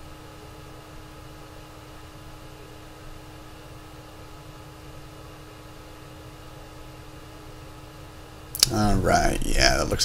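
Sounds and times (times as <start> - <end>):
steady background hiss: 0.0 - 10.0
low hum: 8.6 - 10.0.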